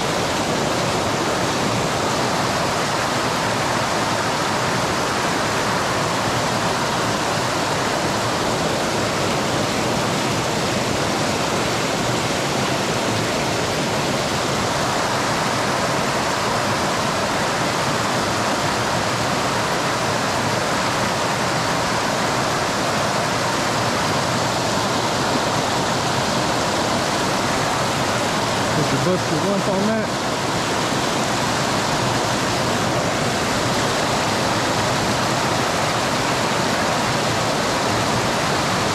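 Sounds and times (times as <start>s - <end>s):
creek water rushing over rocks: 0.0s - 38.9s.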